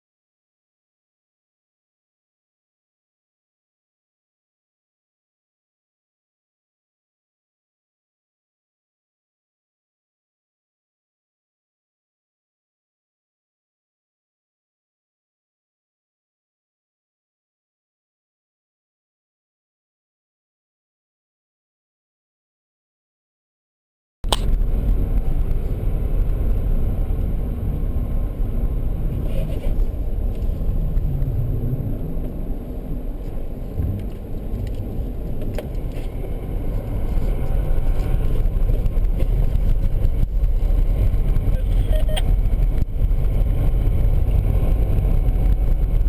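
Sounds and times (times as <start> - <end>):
car engine and tyres rumbling: 24.2 - 46.0.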